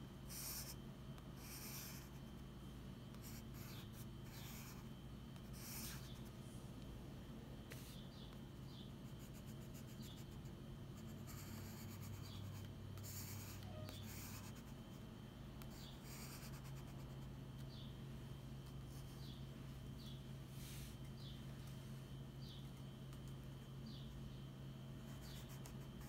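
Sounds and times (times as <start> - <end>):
pencil scratching on paper: 0.3 - 0.8, 1.4 - 2.2, 3.1 - 4.8, 5.4 - 6.3, 9.1 - 14.9, 25.1 - 26.0.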